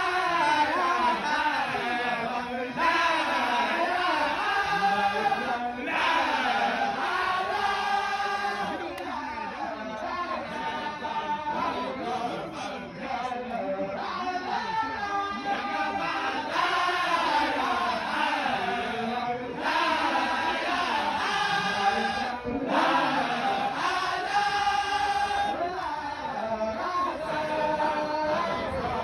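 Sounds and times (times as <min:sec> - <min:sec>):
group of voices chanting: 0:00.0 - 0:29.0.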